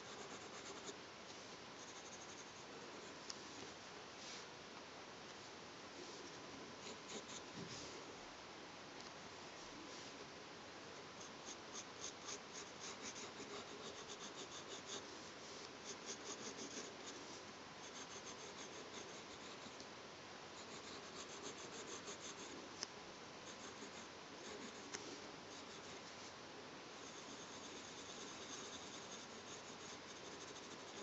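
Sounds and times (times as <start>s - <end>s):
pencil scratching on paper: 0.0s - 1.0s, 1.8s - 3.2s, 6.8s - 7.7s, 11.2s - 15.1s, 15.8s - 19.8s, 20.6s - 22.6s, 23.5s - 26.0s, 27.0s - 31.0s.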